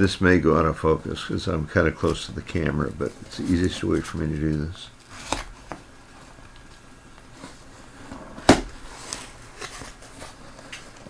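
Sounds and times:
cardboard box being opened: 7.4 - 11.0.

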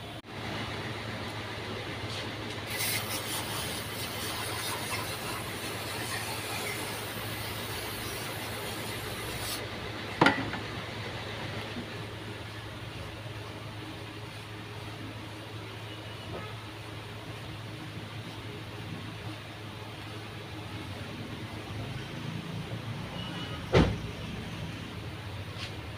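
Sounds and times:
aerosol spray can hissing: 2.7 - 9.6.

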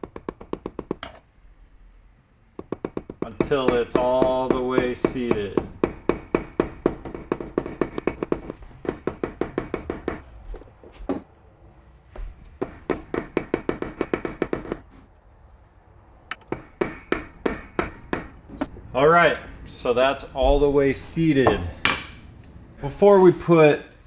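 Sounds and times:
small hammer tapping metal: 0.0 - 1.2, 2.6 - 10.3.

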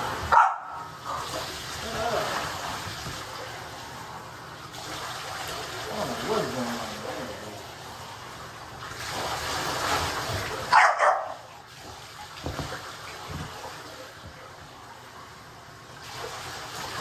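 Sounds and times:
running bath water: 0.0 - 17.0
dog barking: 0.3 - 0.9, 10.7 - 11.4.

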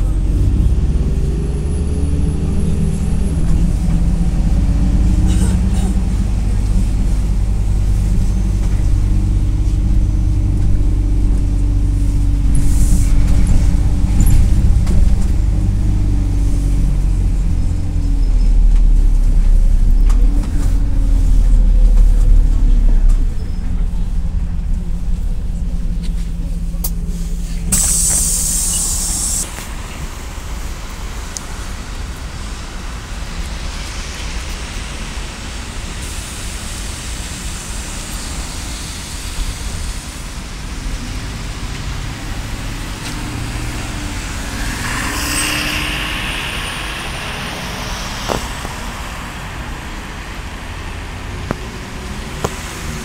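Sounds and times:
bus diesel engine rumble: 0.0 - 53.0
traffic noise: 0.0 - 53.0
air brake hiss: 27.1 - 30.1, 43.0 - 50.0
faint rising whine: 41.8 - 53.0.

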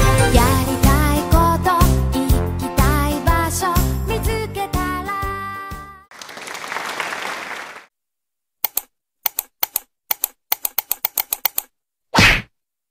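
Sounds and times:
cheerful background music: 0.0 - 6.0
applause-like noise: 6.1 - 7.9
mouse-click sound effects: 8.6 - 11.7.

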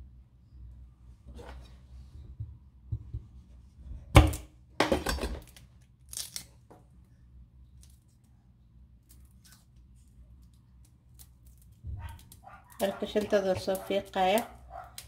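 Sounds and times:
garlic skin crackling: 5.4 - 6.7, 9.0 - 15.0.

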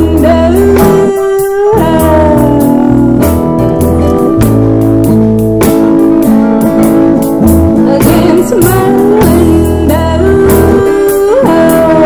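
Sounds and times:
person singing: 0.0 - 4.7, 7.4 - 12.0
acoustic guitar: 0.0 - 12.0
bass guitar: 0.0 - 12.0
drum and cymbal hits: 0.0 - 12.0
keyboard: 0.0 - 12.0.

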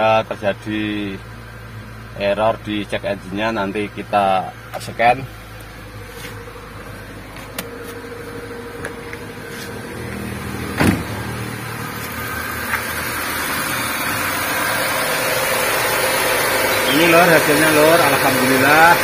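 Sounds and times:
car engine idling: 0.0 - 19.0
car door shutting: 7.3 - 8.1, 8.8 - 13.0.

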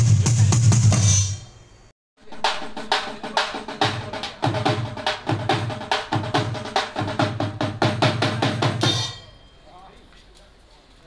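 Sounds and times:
fast drum strikes: 0.0 - 1.4, 2.2 - 9.4.

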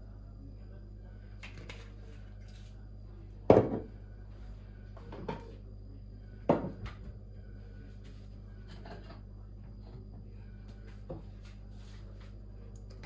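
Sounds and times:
knocks and clunks on counter: 3.5 - 3.9, 5.1 - 5.6, 6.5 - 7.2.

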